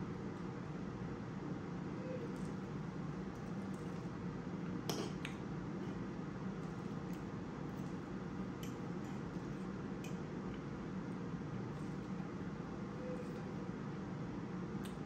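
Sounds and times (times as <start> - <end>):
low room hum: 0.0 - 15.0
chewing: 3.3 - 4.2
fork clicking against plate: 8.6 - 8.8.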